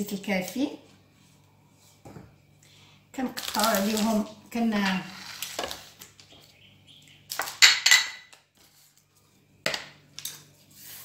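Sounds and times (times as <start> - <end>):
kitchenware clinks and knocks: 7.6 - 8.3.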